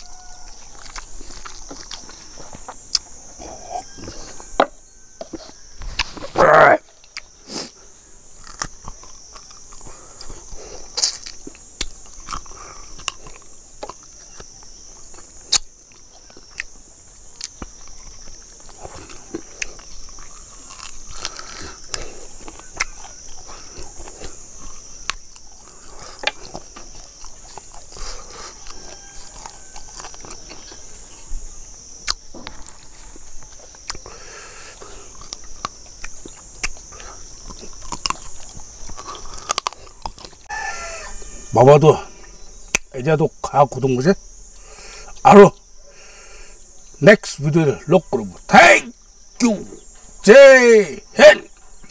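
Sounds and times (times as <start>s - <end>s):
person chewing and sucking: 0.0s - 4.5s, 7.0s - 41.2s
high insect buzz: 0.0s - 51.9s
lip smacks: 17.4s - 30.7s, 33.5s - 40.5s.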